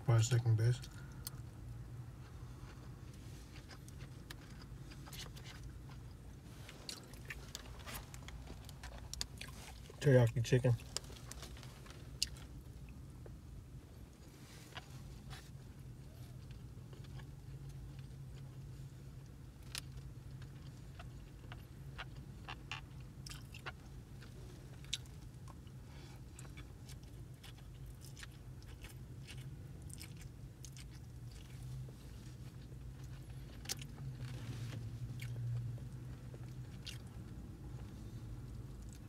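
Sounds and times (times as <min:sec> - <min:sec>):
steady low hum: 0:00.0 - 0:39.0
person chewing noodles: 0:02.1 - 0:10.0, 0:16.0 - 0:34.4, 0:36.3 - 0:37.1.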